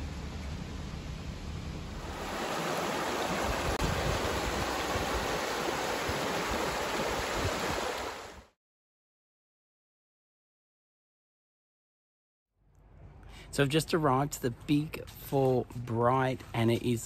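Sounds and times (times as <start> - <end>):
water rushing over rocks: 2.0 - 8.5.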